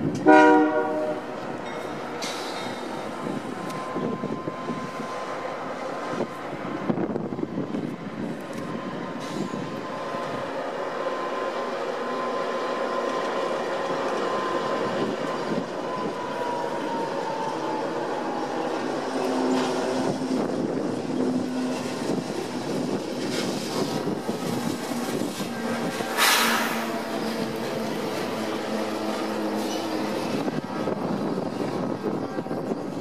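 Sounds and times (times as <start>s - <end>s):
locomotive low hum: 0.0s - 33.0s
train wheels rumbling on rail: 0.0s - 33.0s
thin high whine: 26.0s - 27.5s.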